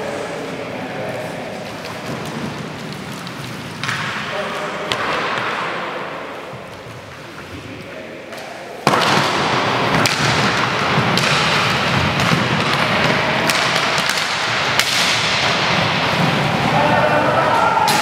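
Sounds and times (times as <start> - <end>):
players skating on wooden floor: 0.0 - 18.0
hockey stick clacks and knocks: 1.8 - 6.0, 8.3 - 16.8.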